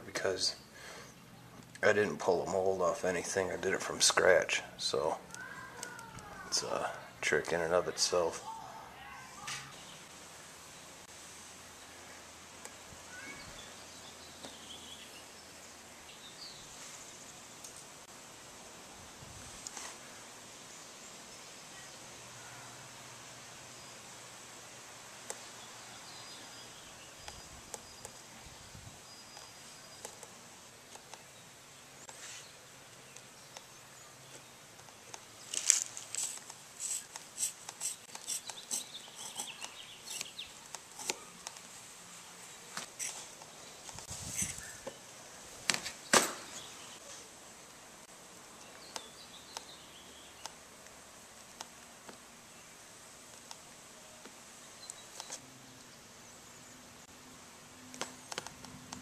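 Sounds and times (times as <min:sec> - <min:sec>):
steady background hiss: 0:00.0 - 0:59.0
cloth and tape rustling: 0:34.9 - 0:44.7.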